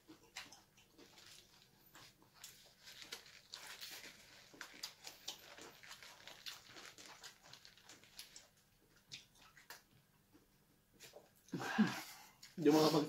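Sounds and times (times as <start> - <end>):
chewing crispy food: 0.0 - 12.6.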